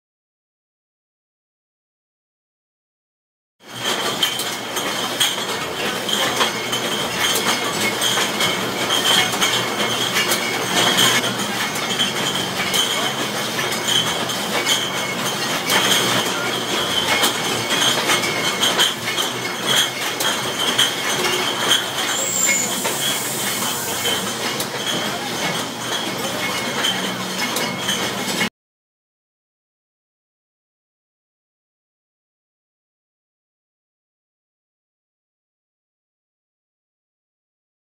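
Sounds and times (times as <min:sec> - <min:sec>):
bottling machinery clatter: 0:03.7 - 0:28.5
glass bottles clinking: 0:03.8 - 0:28.4.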